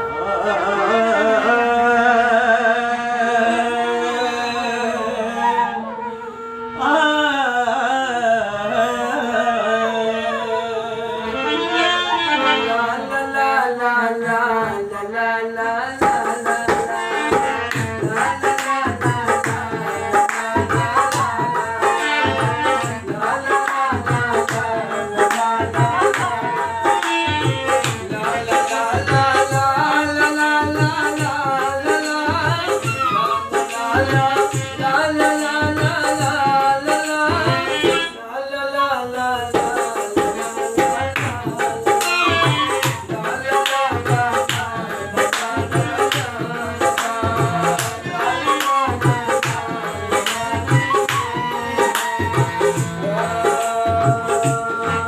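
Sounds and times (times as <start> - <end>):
harmonium: 0.0 - 55.0
man singing: 0.0 - 55.0
bansuri flute: 4.0 - 8.2, 10.1 - 13.0, 32.7 - 34.0, 48.4 - 53.4
dholak drum rhythm: 11.4 - 38.2, 38.9 - 55.0.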